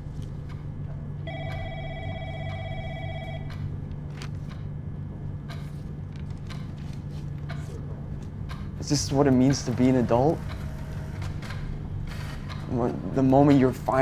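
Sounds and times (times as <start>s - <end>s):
low hum: 0.0s - 14.0s
telephone trilling ring: 1.2s - 3.6s
papers rustling and flapping: 3.9s - 4.6s.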